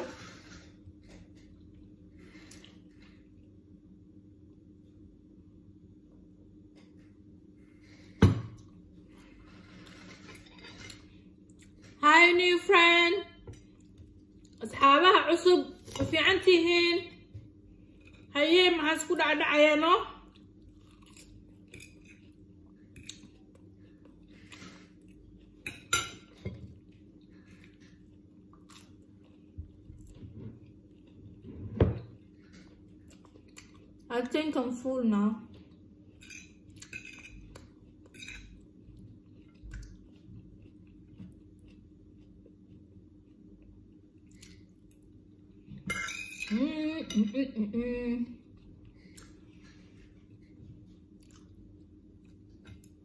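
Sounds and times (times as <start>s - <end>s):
woman vocalizing: 46.5s - 48.4s.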